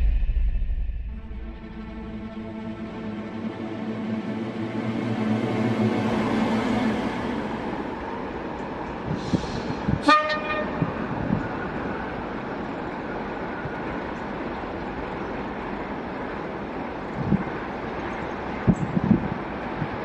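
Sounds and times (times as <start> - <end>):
steady background rumble: 0.0 - 10.1
locomotive horn toot: 10.0 - 11.1.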